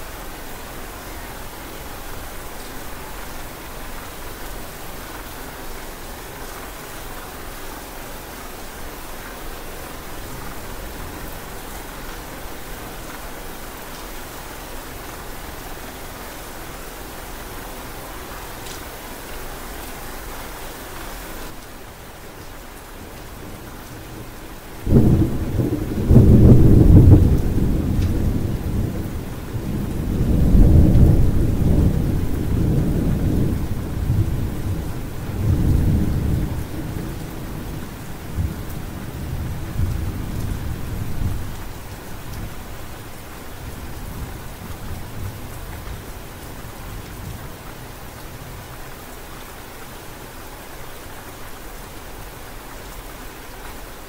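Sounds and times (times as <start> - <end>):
steady rain: 0.0 - 54.0
thunder clap and rumble: 23.4 - 41.6.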